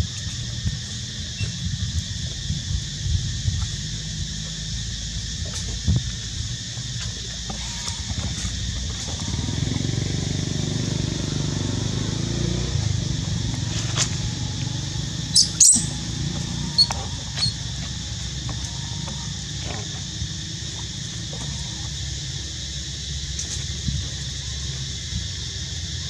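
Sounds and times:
steady low rumble: 0:00.0 - 0:07.4, 0:12.6 - 0:25.8
short high squeaks: 0:15.3 - 0:16.0, 0:16.6 - 0:17.6.

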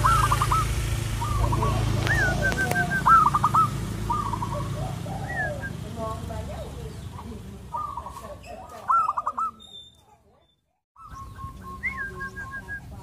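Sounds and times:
dove cooing: 0:00.0 - 0:10.2, 0:11.0 - 0:13.0.

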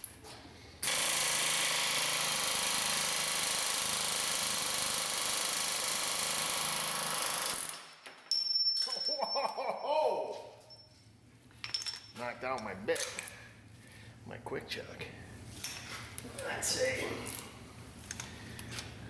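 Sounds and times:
pneumatic air hammer running: 0:00.8 - 0:07.9
metallic clinks and ringing: 0:08.2 - 0:09.9, 0:10.5 - 0:12.2.

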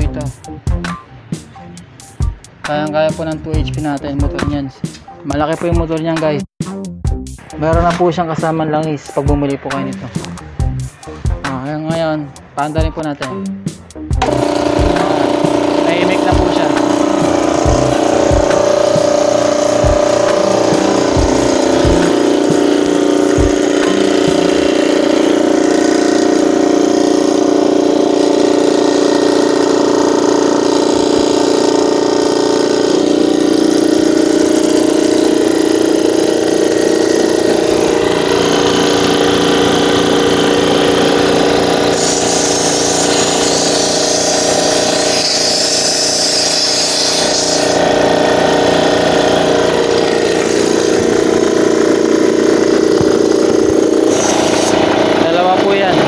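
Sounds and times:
air compressor running: 0:14.1 - 0:56.0.

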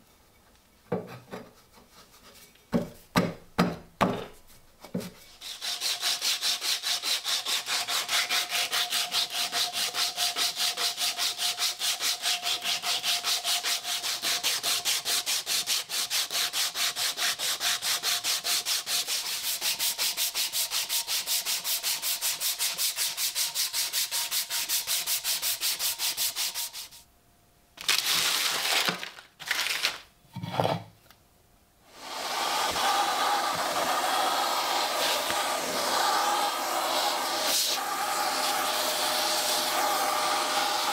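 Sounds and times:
sandpaper rubbing on wood: 0:05.3 - 0:27.0, 0:32.0 - 0:40.9.

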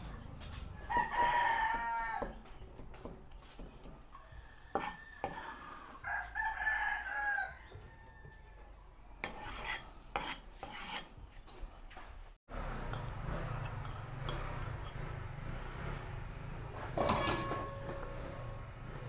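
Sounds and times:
rooster crowing: 0:00.8 - 0:02.4, 0:04.2 - 0:08.7.

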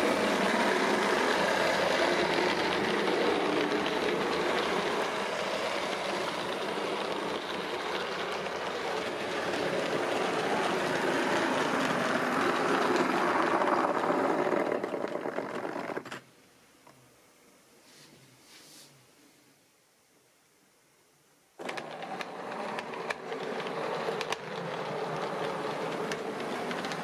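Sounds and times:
model train running on track: 0:00.0 - 0:15.9, 0:21.6 - 0:27.0.

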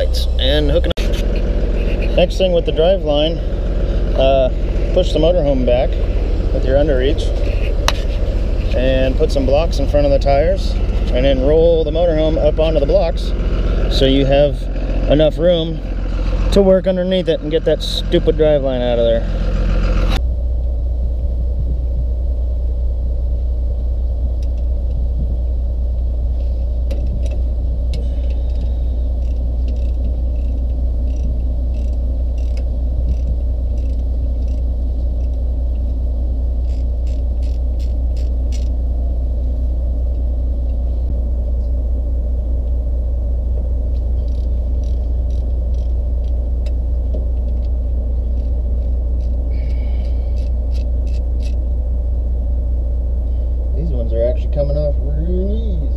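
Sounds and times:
diesel engine idling: 0:00.0 - 0:55.9
wrench clicking: 0:26.9 - 0:35.9, 0:36.6 - 0:38.8, 0:44.2 - 0:46.8, 0:48.3 - 0:51.6.

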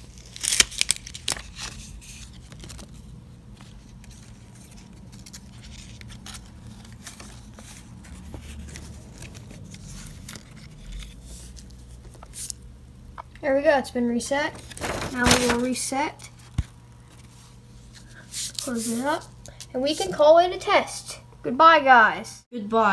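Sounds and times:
paper crinkles and clicks: 0:00.0 - 0:12.6, 0:14.6 - 0:15.7.

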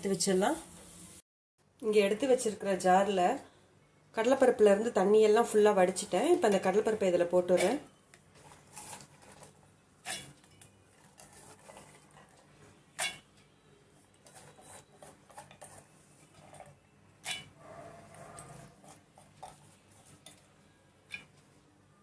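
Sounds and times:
scraping in steel bowl: 0:07.5 - 0:13.3, 0:14.2 - 0:20.4.

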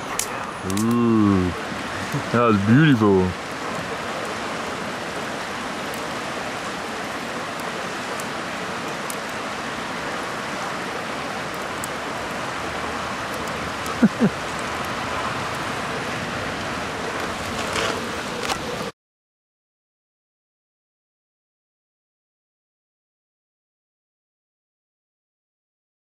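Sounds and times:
campfire hissing and crackling: 0:00.0 - 0:18.9.

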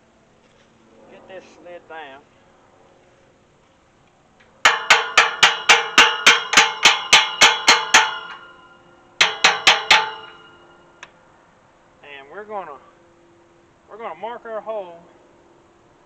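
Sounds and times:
wrench tapping steel hinge: 0:04.7 - 0:08.6, 0:09.2 - 0:10.6.

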